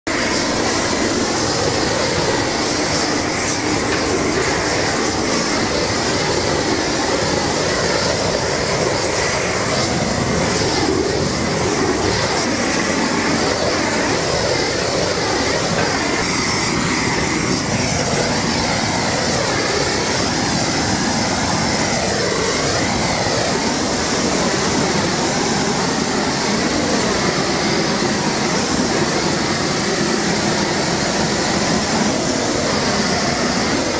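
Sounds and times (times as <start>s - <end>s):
gas torch hissing: 0.1s - 33.9s.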